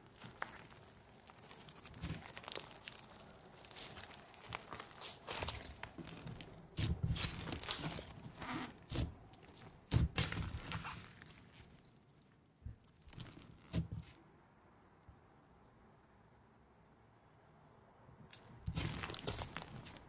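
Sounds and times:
slime squishing and popping: 0:00.1 - 0:12.3, 0:18.3 - 0:20.0.

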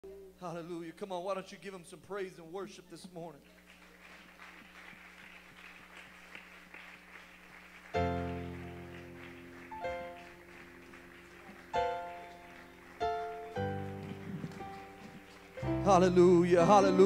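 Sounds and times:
soft instrumental worship music: 0:07.8 - 0:17.0.

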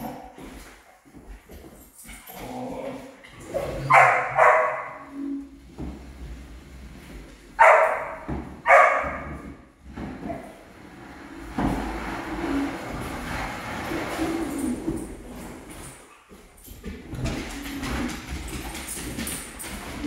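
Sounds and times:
dog barking: 0:03.9 - 0:05.0, 0:07.6 - 0:09.4.

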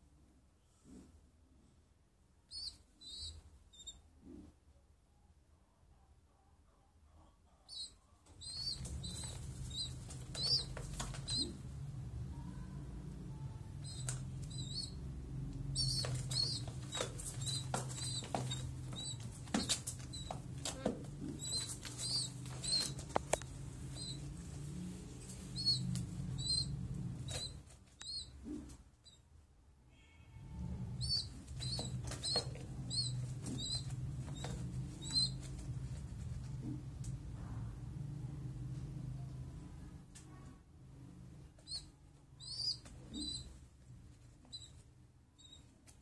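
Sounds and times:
young pigeons peeping: 0:02.5 - 0:04.4, 0:07.6 - 0:29.2, 0:30.6 - 0:37.3, 0:41.4 - 0:46.0
wings fluttering: 0:08.4 - 0:11.7, 0:15.6 - 0:28.7, 0:31.0 - 0:36.5.

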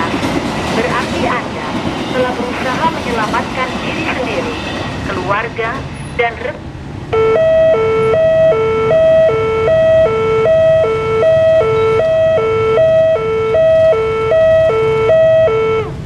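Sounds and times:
motorcycle traffic rumble: 0:05.8 - 0:16.0
level crossing two-tone alarm: 0:07.2 - 0:16.0.

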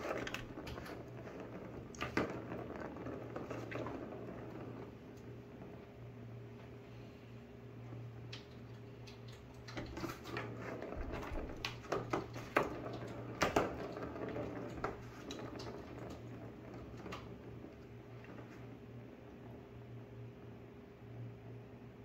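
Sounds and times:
ball rattling in plastic track: 0:00.0 - 0:05.8, 0:09.1 - 0:18.7.

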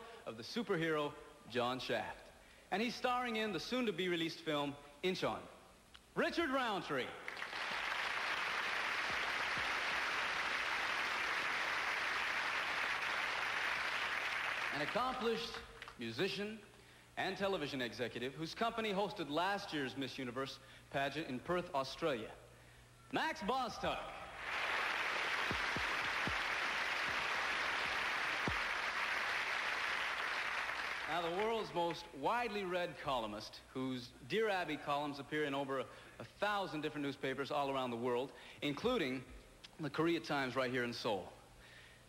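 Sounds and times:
large audience applauding: 0:07.3 - 0:15.3, 0:24.4 - 0:31.5.

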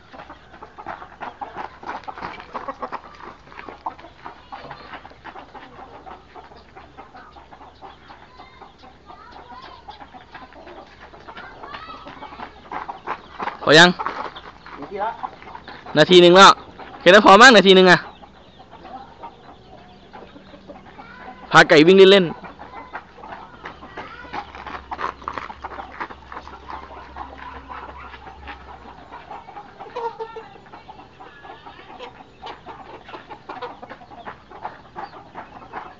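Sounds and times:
footsteps on gravelly dirt: 0:00.0 - 0:07.0, 0:09.5 - 0:17.0, 0:22.3 - 0:31.4, 0:32.1 - 0:35.9
chickens clucking: 0:00.0 - 0:35.9
long bending chicken calls: 0:00.0 - 0:35.9.

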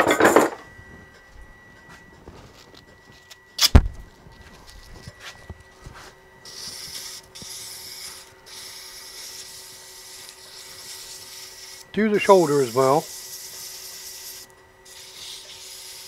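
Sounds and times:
sandpaper hissing on spinning wood: 0:06.4 - 0:16.0.

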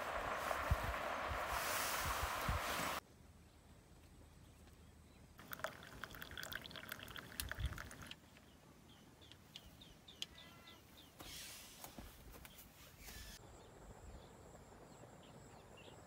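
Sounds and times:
drink pouring into metal mug: 0:05.4 - 0:08.2
bird chirping: 0:07.8 - 0:11.3.

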